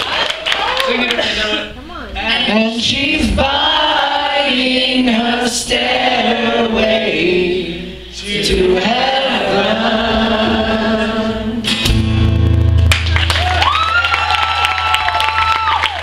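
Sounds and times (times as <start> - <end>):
acoustic guitars: 1.2 - 13.8
voices singing together: 2.5 - 11.8.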